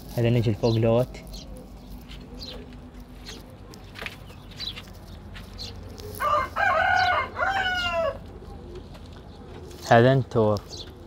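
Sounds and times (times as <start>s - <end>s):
rooster crowing: 6.2s - 8.3s.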